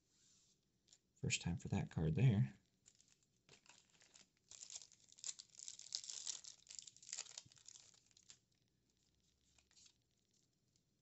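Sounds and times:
foil wrapper crinkling and tearing: 2.8s - 10.8s.

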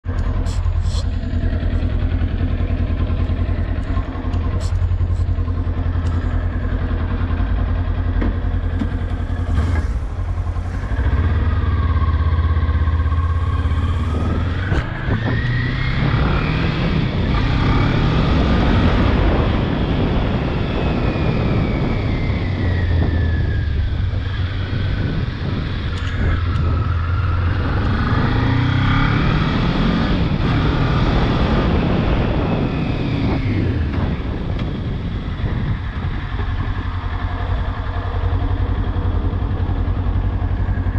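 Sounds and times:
motorcycle engine accelerating: 0.0s - 40.9s
wind noise on microphone: 8.9s - 40.9s.

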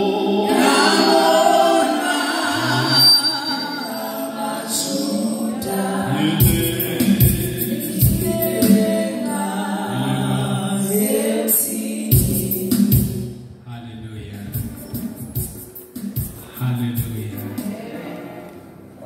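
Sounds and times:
voices singing gospel song: 0.0s - 13.4s
heavy percussion beats: 6.4s - 9.0s, 12.1s - 13.4s, 14.4s - 18.0s.

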